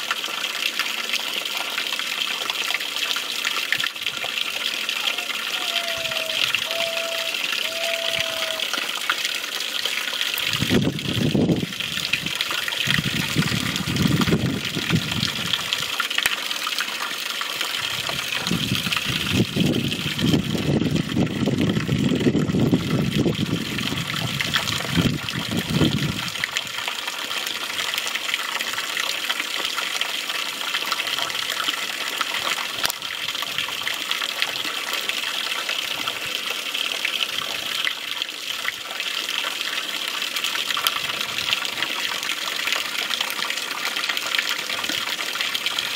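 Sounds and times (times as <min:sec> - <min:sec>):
water jet spraying on dirt: 0:10.0 - 0:16.2, 0:17.0 - 0:26.8.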